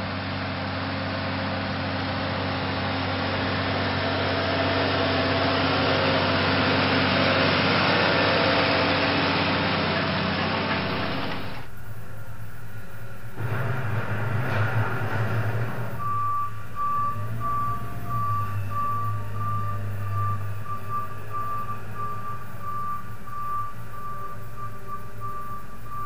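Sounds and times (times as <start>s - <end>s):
low engine hum: 0.0s - 26.0s
tractor diesel engine running: 0.0s - 26.0s.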